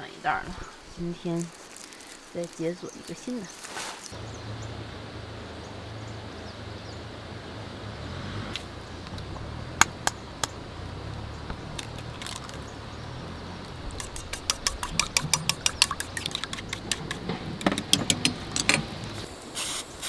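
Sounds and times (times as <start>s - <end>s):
chopsticks beating eggs in bowl: 13.9s - 18.3s
eggs cracking on metal bowl: 13.9s - 18.8s.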